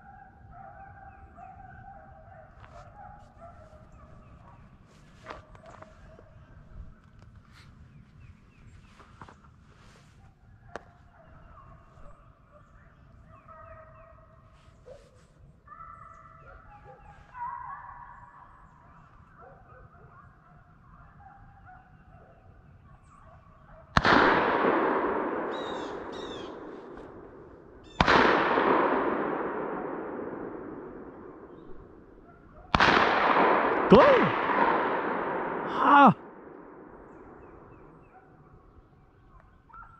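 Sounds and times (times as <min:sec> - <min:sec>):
distant hounds baying: 0:00.0 - 0:39.9
loud echoing gunshots: 0:24.0 - 0:38.2.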